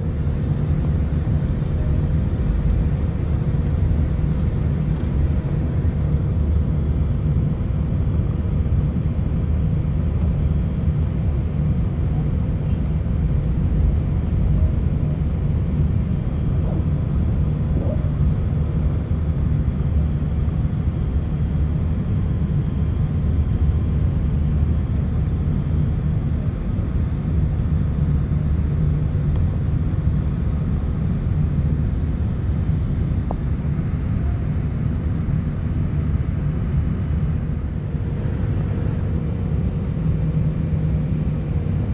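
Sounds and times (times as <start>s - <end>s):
airliner cabin rumble: 0.0s - 41.9s.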